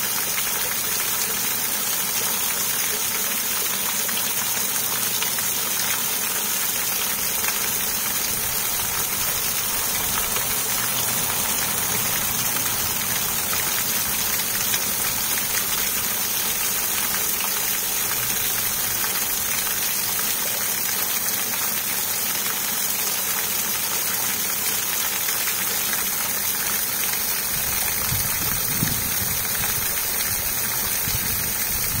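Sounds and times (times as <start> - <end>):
waterfall splashing into pond: 0.0 - 32.0.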